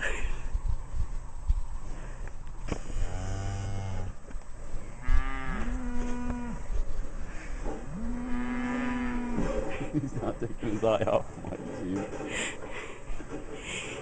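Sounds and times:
cattle mooing: 2.8 - 4.2, 5.0 - 6.7, 7.8 - 9.6.

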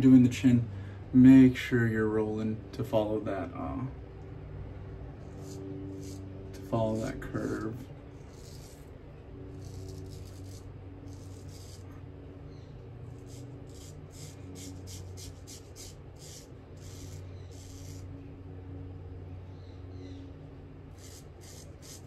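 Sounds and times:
steady low hum: 0.0 - 22.0
razor scraping stubble: 5.1 - 18.4, 20.9 - 22.0.

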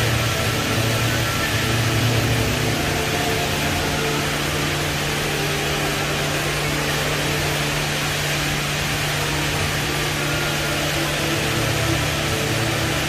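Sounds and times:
indoor waterfall roaring: 0.0 - 13.0.

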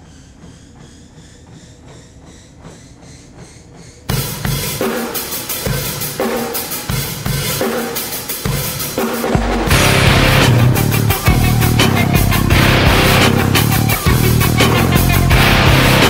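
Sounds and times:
loud drum-heavy music: 4.1 - 16.0.

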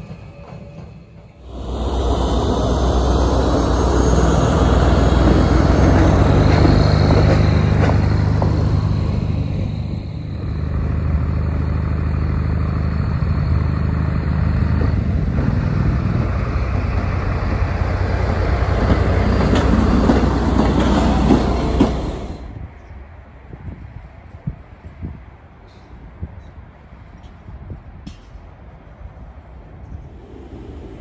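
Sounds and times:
locomotive engine droning: 0.0 - 22.7, 30.0 - 31.0.

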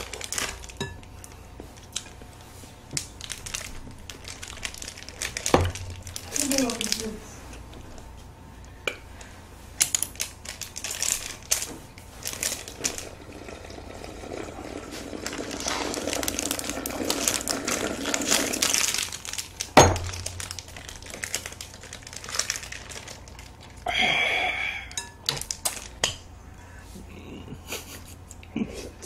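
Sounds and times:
plastic wrappers crinkling: 0.0 - 7.4, 9.8 - 13.7, 15.0 - 24.0, 25.2 - 26.1
slurping: 13.1 - 18.7.

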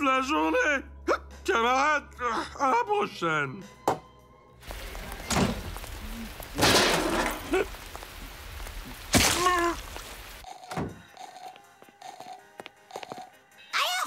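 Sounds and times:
cartoon rain falling: 4.6 - 10.4.

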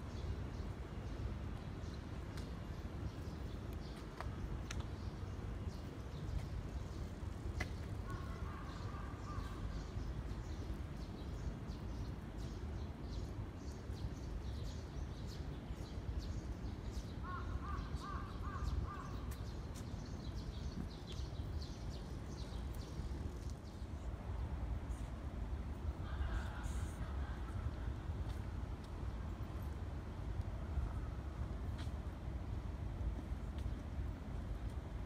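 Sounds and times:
steady low rumble: 13.9 - 35.0.

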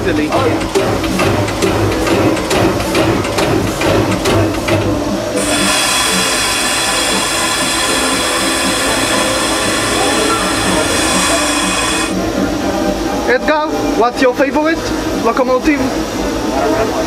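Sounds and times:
steam locomotive chuffing: 0.0 - 12.4
high-pitched hissing whine: 5.4 - 12.3.

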